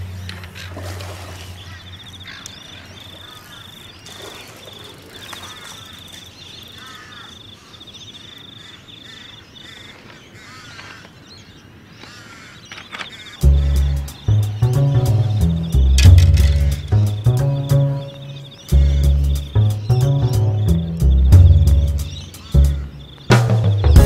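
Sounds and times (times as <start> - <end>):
insect chirping: 0.0 - 10.0, 12.7 - 24.0
short bird calls: 0.0 - 24.0.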